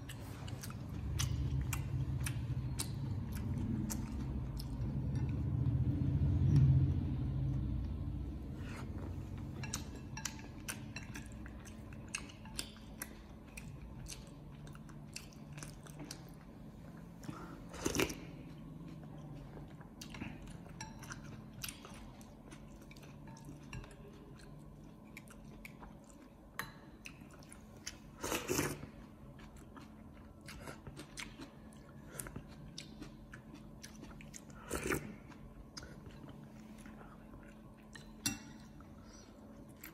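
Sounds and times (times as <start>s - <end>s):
person chewing: 0.0s - 5.8s, 7.8s - 39.9s
low rumble: 1.2s - 9.5s
chopsticks and spoon clinking bowl: 4.0s - 5.7s, 9.0s - 14.4s, 20.3s - 24.6s, 37.8s - 39.2s.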